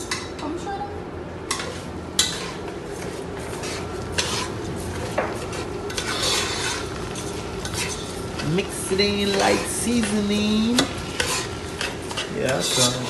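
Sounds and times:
light sizzle: 1.5 - 13.0
metal utensil scraping a pot: 3.6 - 4.5, 5.9 - 8.5, 11.2 - 13.0.

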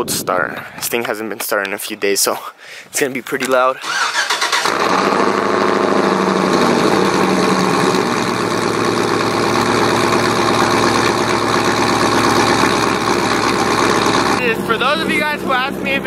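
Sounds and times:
truck engine idling: 3.8 - 16.0.

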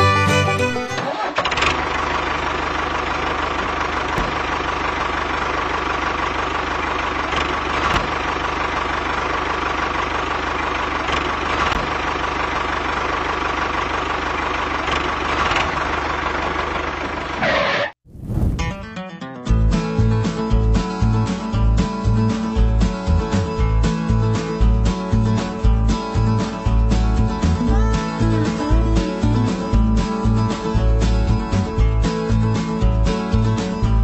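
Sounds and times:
music: 0.0 - 1.0, 18.6 - 34.0
tractor diesel engine chugging: 0.0 - 17.8, 20.0 - 34.0.

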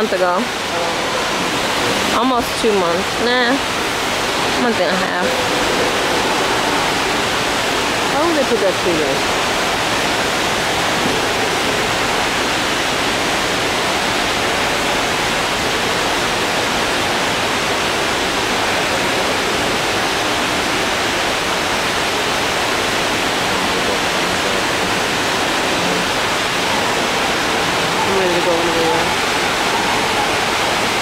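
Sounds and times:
steady rushing noise: 0.0 - 31.0.

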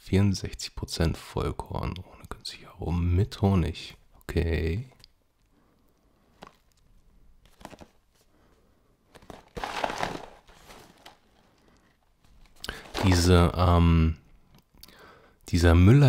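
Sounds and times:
cereal packaging crinkling and tearing: 7.5 - 8.0, 9.1 - 13.3.

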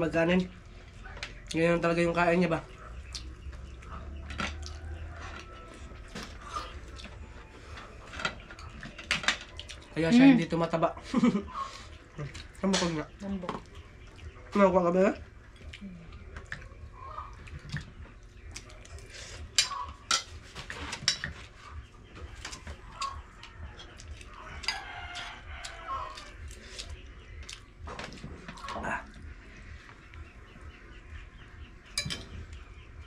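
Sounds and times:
chickens clucking: 0.0 - 33.0
rooster crowing: 4.5 - 6.5, 22.9 - 26.4
spoons clinking on plates: 19.6 - 21.4, 32.0 - 32.4.

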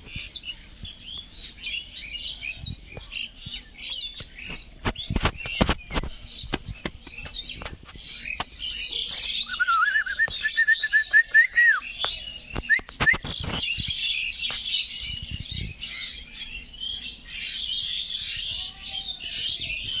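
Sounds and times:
small birds chirping and twittering: 0.0 - 20.0
sharp clicks and knocks: 5.2 - 7.8.

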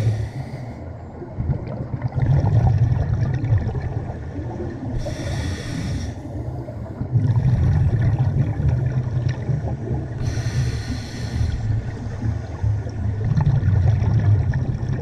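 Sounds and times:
regulator inhalation hiss: 0.0 - 0.8, 5.0 - 6.2, 10.2 - 11.7
exhaled bubbles: 1.2 - 15.0.

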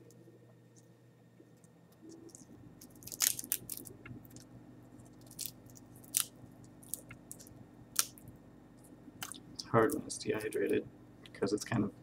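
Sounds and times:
dry insect shell cracking: 1.6 - 8.4.

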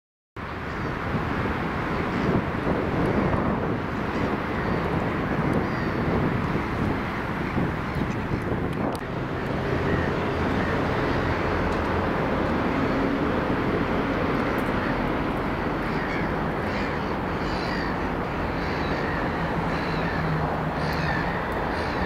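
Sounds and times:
distant road and rail traffic: 0.4 - 22.0
crow-like bird calls: 5.6 - 6.0, 9.4 - 11.5, 14.6 - 22.0.

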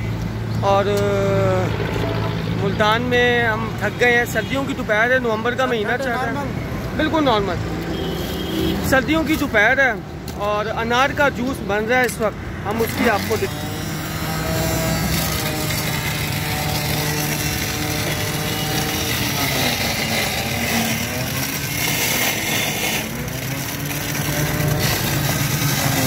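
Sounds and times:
electric juicer motor humming: 13.1 - 26.0.

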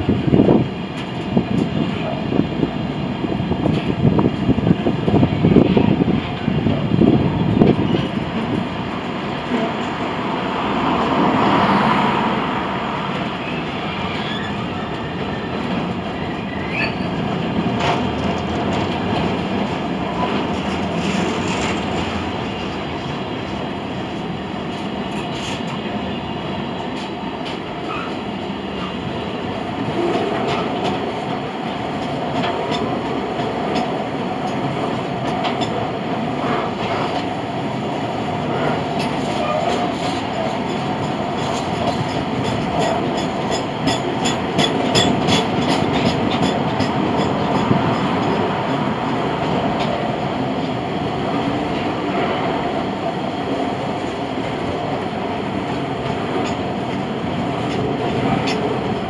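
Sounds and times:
train wheels rumbling on rail: 0.0 - 59.0
faint wheel squeal: 13.4 - 15.6, 16.2 - 17.1.

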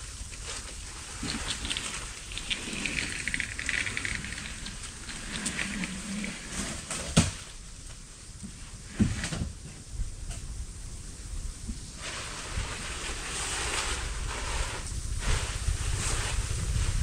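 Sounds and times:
boards clattering and scraping: 0.5 - 7.6.

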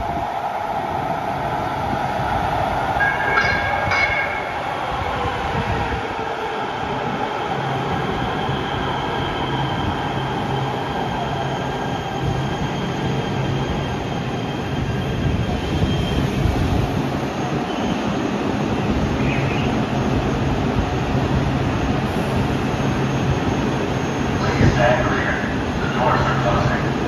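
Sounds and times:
train wheel squeal: 7.0 - 20.1.

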